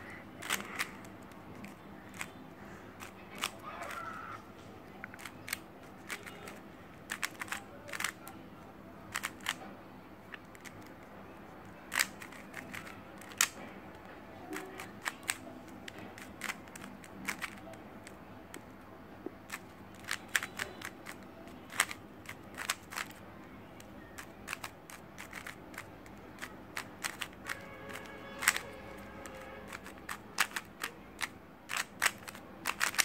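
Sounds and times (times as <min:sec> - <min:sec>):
puzzle cube plastic clicks: 0:00.4 - 0:02.4, 0:03.0 - 0:03.6, 0:05.0 - 0:08.3, 0:09.1 - 0:09.6, 0:11.9 - 0:13.6, 0:14.5 - 0:18.8, 0:19.4 - 0:23.2, 0:23.8 - 0:33.0.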